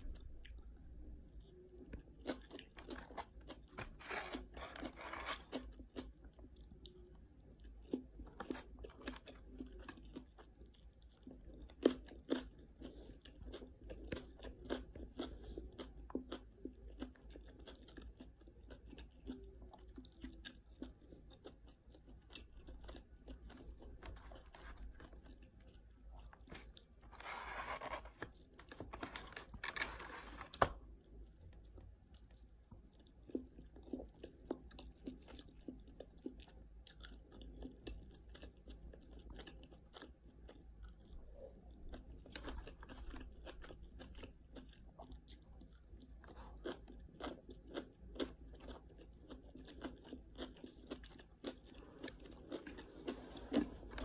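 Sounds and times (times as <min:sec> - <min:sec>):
chewing and crunching cabbage: 0:00.0 - 0:54.0.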